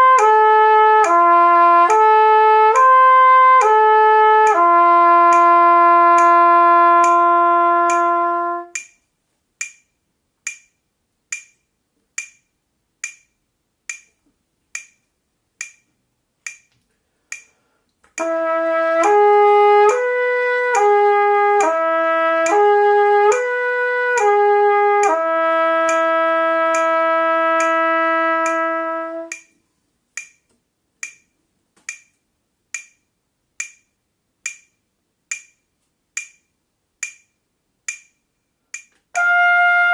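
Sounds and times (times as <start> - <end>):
trumpet playing: 0.0 - 8.8, 18.2 - 29.5, 39.1 - 39.9
metronome clicking: 0.0 - 39.9.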